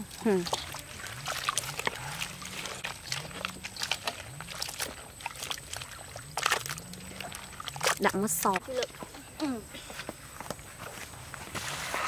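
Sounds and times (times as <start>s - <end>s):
wet squelching and sloshing: 0.0s - 9.2s.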